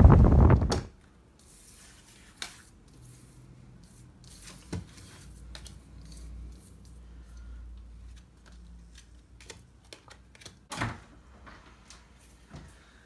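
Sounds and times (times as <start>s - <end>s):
wind noise: 0.0s - 0.9s.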